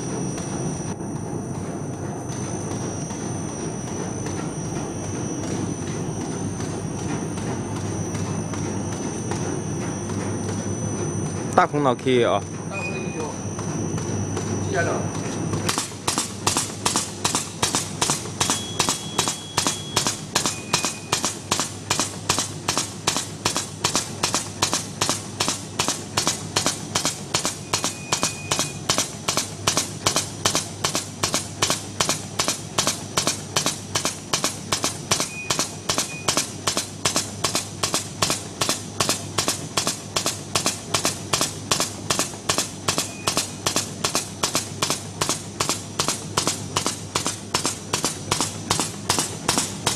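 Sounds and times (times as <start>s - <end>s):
bag machine clacking: 1.5s - 49.9s.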